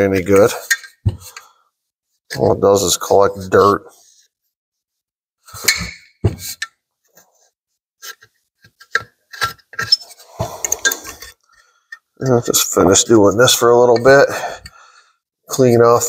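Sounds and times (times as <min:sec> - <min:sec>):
short scraping: 0:10.1 - 0:11.3.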